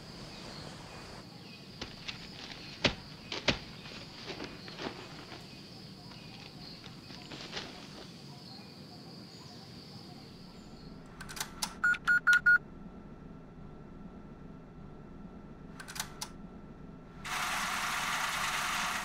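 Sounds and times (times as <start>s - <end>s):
short electronic beeps: 11.8s - 12.6s.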